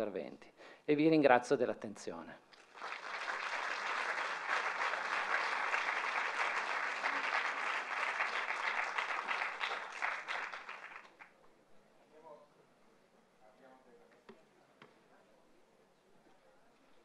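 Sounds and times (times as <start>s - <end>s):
audience applauding: 2.6s - 11.3s.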